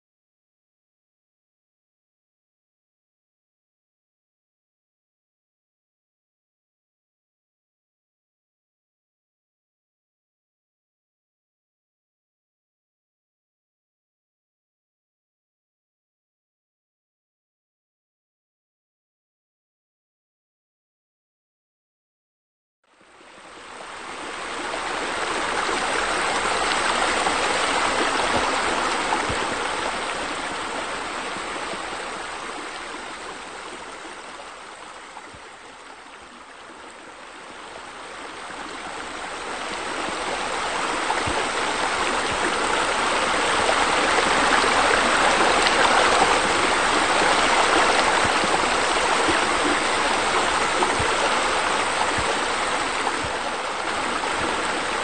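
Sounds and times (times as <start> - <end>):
running water rushing: 23.0 - 55.0.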